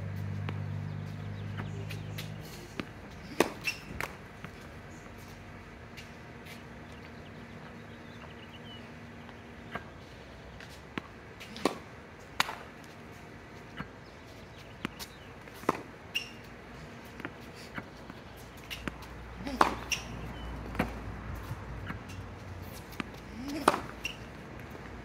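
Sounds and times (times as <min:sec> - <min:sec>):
tennis balls hitting rackets: 0:00.0 - 0:25.0
birds chirping: 0:00.4 - 0:10.6, 0:13.0 - 0:21.0
balls bouncing on hard court: 0:17.1 - 0:25.0.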